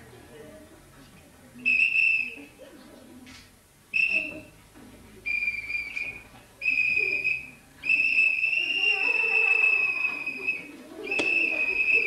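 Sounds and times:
high whistle notes: 5.3 - 12.0.

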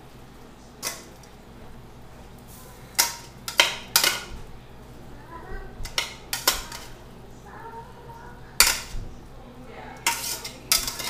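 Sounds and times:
metal tongs clanking on a pan: 0.8 - 1.4, 2.5 - 4.4, 5.6 - 7.1, 8.5 - 9.0, 9.7 - 11.0.

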